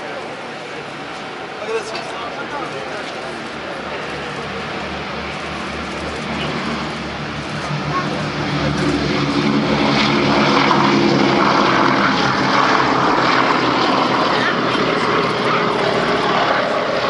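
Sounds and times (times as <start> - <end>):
propeller aircraft engines roaring: 0.0 - 17.0.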